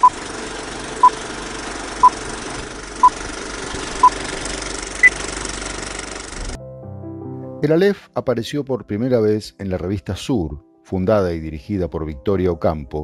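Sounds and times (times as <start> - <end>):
film projector rattle: 0.0 - 6.6.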